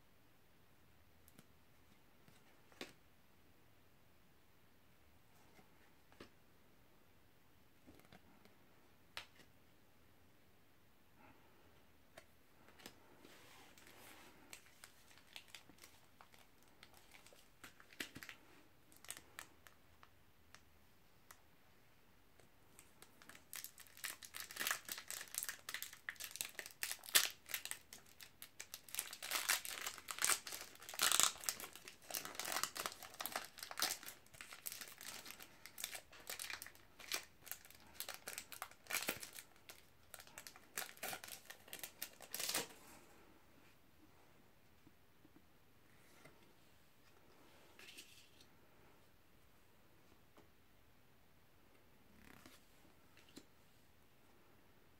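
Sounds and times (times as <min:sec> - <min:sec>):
plastic wrapper crinkling and tearing: 0:14.5 - 0:20.1, 0:22.8 - 0:42.8.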